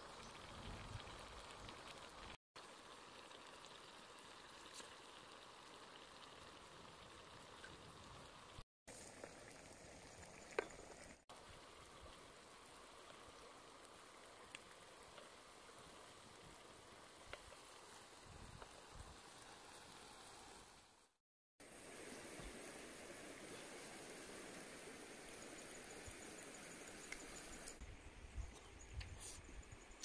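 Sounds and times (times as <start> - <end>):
stew bubbling in pot: 0.0 - 19.5.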